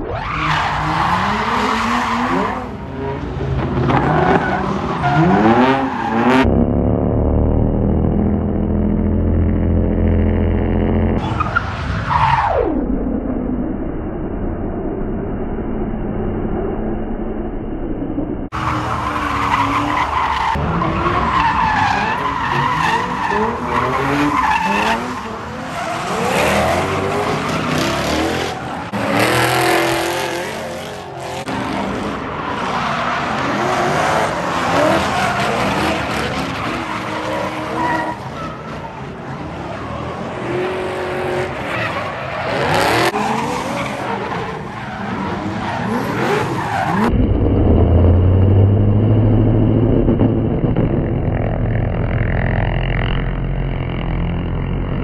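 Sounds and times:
car engines revving hard: 18.5 - 55.0.

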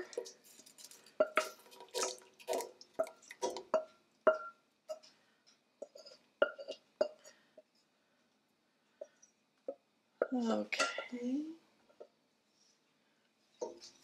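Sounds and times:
wooden spatula scraping saucepan: 0.0 - 3.9, 5.8 - 7.4
soup plopping: 1.2 - 4.6.

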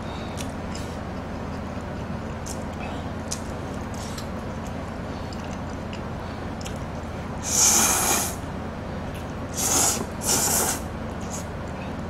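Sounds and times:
steady low hum: 0.0 - 12.0
person slurping noodles: 7.4 - 8.4, 9.5 - 11.5.

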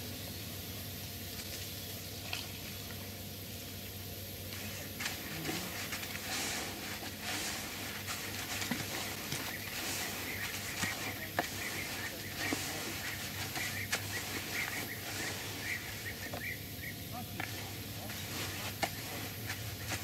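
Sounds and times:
steady hiss: 0.0 - 20.0
groundbait stirred in plastic bucket: 4.9 - 16.0.

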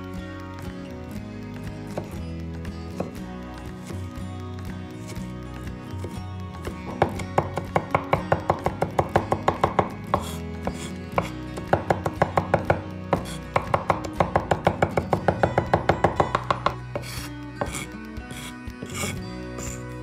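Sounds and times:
background music: 0.0 - 20.0
cleaver chopping on wooden board: 2.9 - 3.2, 6.0 - 19.2.

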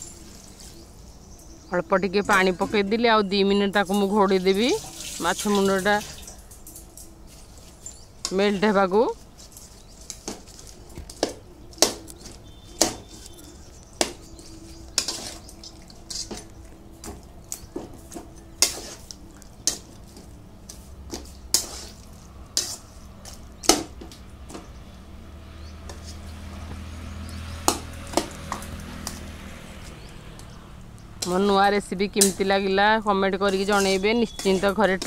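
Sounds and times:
metal spatula scraping a pan: 12.4 - 16.5, 17.8 - 20.2, 20.8 - 23.8, 33.4 - 35.0.

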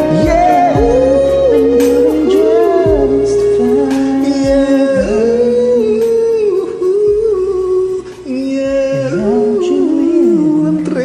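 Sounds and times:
deep bass beats: 0.0 - 11.0
karaoke backing track: 0.0 - 11.0
man singing: 0.0 - 11.0.

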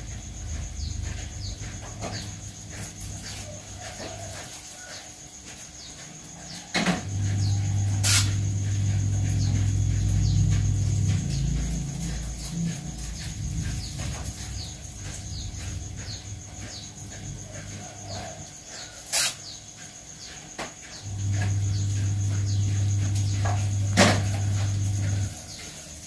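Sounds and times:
insects trilling: 0.0 - 26.0
low hum: 6.9 - 17.8, 21.0 - 25.7.

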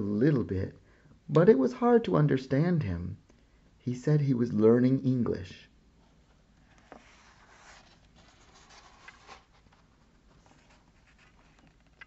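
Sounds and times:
book page turning: 6.6 - 12.0.

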